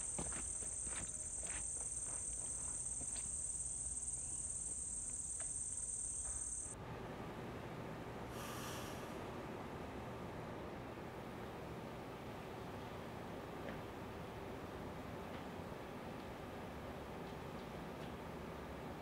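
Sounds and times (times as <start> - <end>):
high-pitched insect chorus: 0.0 - 6.8
faint hiss: 8.3 - 9.3.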